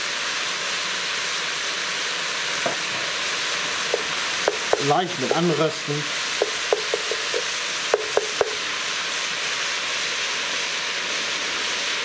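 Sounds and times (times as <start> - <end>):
vegetables sizzling in a pot: 0.0 - 12.0
wooden spoon knocking against pot: 3.9 - 5.5, 6.4 - 8.6.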